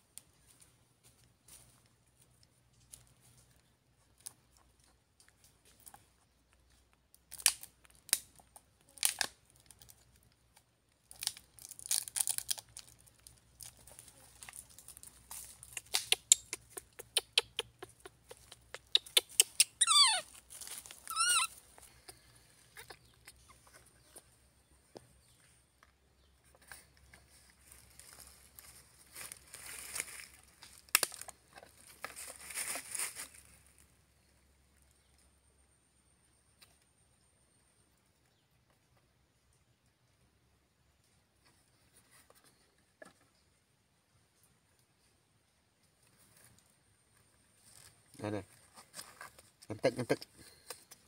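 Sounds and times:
rustling and crinkling: 0.0 - 35.3, 41.0 - 43.6, 44.2 - 51.0
baby monkey squealing: 15.7 - 20.3, 21.0 - 21.6.

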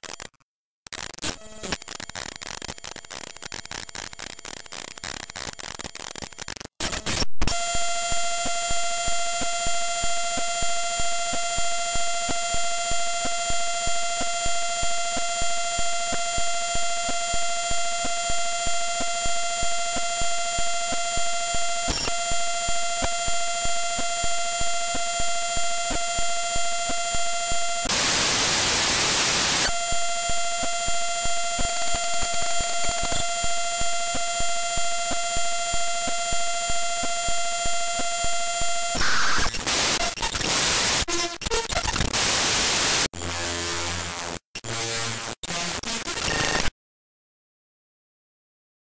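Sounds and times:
harsh pulsing electronic buzz: 7.5 - 41.1.

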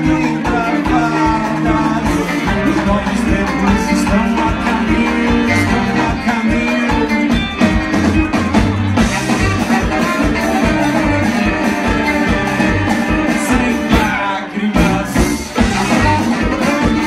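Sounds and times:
bass guitar: 0.0 - 17.0
electric guitars: 0.0 - 17.0
steady drum beat: 0.0 - 17.0
saxophone section: 9.0 - 17.0.

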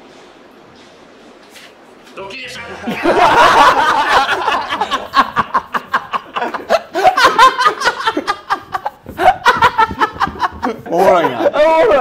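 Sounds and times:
men laughing: 2.4 - 12.0.

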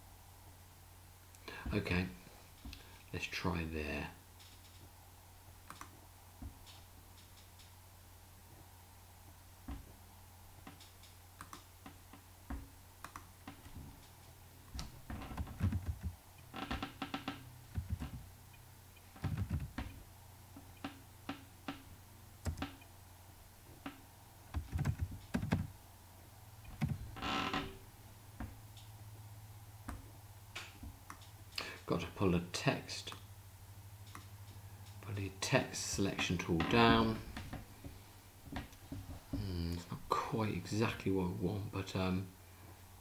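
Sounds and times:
steady low hum: 0.0 - 43.0
mouse clicks: 13.0 - 13.3
keyboard keystrokes: 19.2 - 19.9, 24.6 - 25.7.

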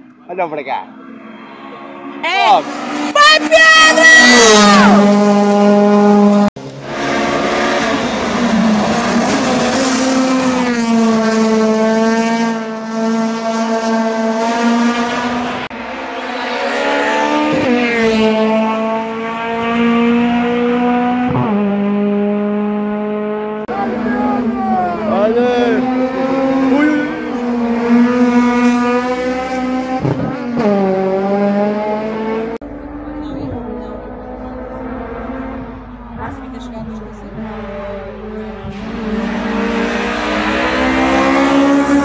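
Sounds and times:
race car engine revving: 1.0 - 42.0.

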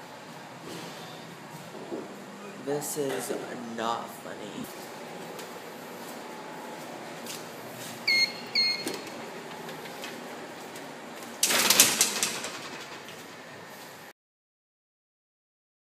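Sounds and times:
short electronic beeps: 8.0 - 9.0.

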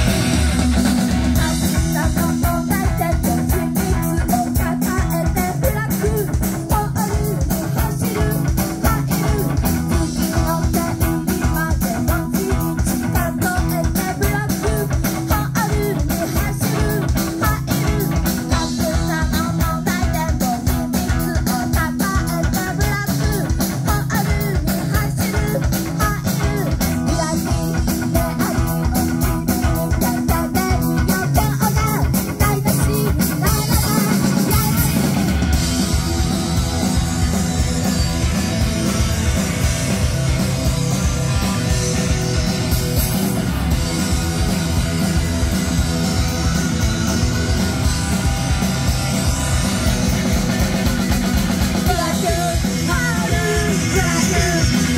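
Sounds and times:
drum kit beat: 0.0 - 54.9
electric guitar: 0.0 - 54.9
person singing into microphone: 1.3 - 35.3, 51.7 - 54.9.

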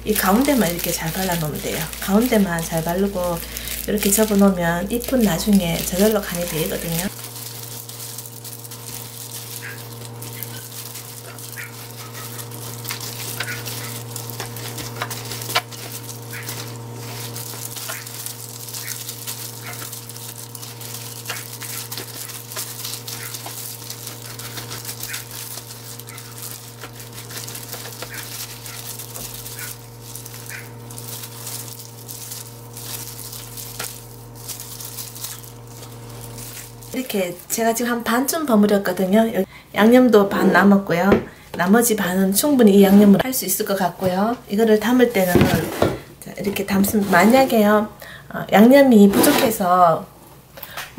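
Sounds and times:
gloved hands squelching paste: 0.0 - 37.0
plastic rustling: 0.0 - 39.5, 41.1 - 47.9, 48.8 - 49.9
steady low hum: 0.0 - 50.9.

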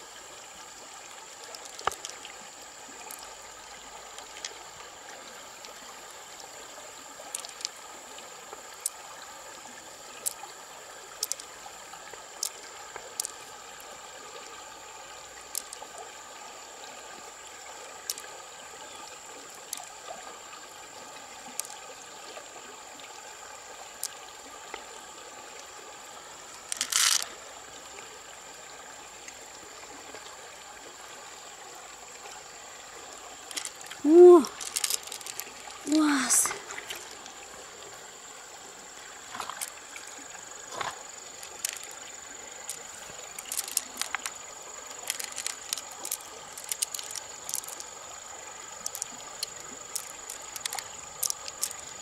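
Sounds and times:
river trickling: 0.0 - 52.0
shells clicking: 26.7 - 27.2, 34.5 - 35.5, 43.4 - 44.3, 45.0 - 47.9, 48.8 - 49.1, 49.9 - 51.8.

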